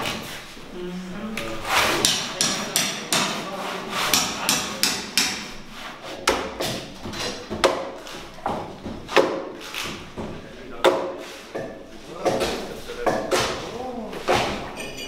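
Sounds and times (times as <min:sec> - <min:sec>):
hammer strikes on timber: 0:02.0 - 0:03.4, 0:04.1 - 0:05.5, 0:06.2 - 0:06.9, 0:07.5 - 0:09.5, 0:10.2 - 0:13.6.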